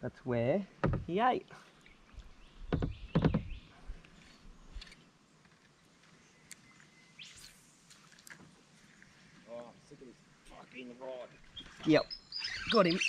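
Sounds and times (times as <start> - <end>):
faint bird chirps: 6.1 - 7.8, 10.5 - 13.0.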